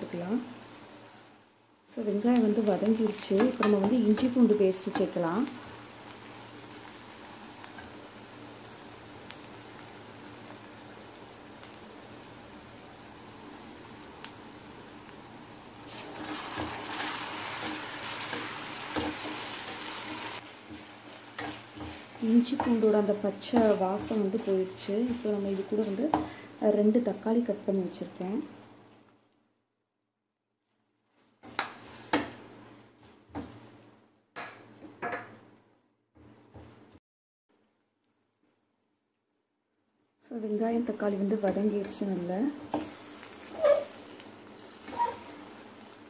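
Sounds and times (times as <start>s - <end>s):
paste sizzling in hot oil: 0.2s - 26.9s, 40.8s - 46.0s
metal spoon scraping pan: 43.5s - 44.0s.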